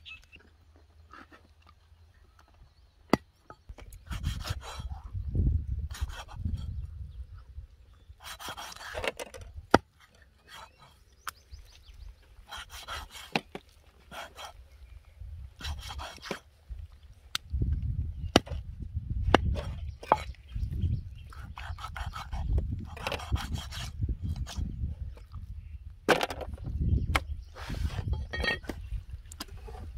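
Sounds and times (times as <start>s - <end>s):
rough scraping strokes: 27.5s - 28.8s.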